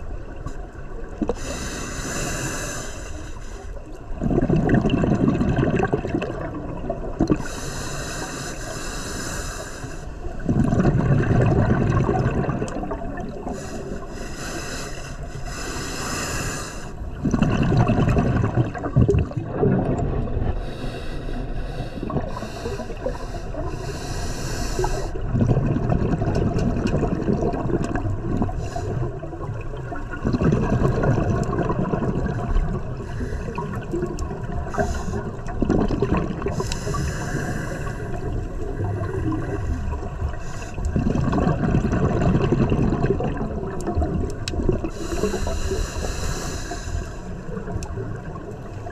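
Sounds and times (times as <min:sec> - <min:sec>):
regulator inhalation hiss: 0:01.4 - 0:03.8, 0:07.4 - 0:10.2, 0:13.5 - 0:17.0, 0:20.6 - 0:25.2, 0:34.7 - 0:35.4, 0:36.5 - 0:38.2, 0:44.9 - 0:47.5
rumbling exhaust bubbles: 0:04.2 - 0:07.5, 0:10.4 - 0:13.6, 0:17.1 - 0:20.6, 0:24.9 - 0:45.6.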